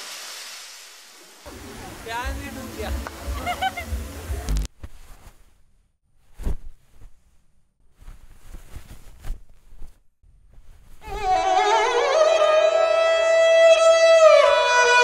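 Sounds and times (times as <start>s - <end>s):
bowed string instrument melody: 11.0s - 15.0s.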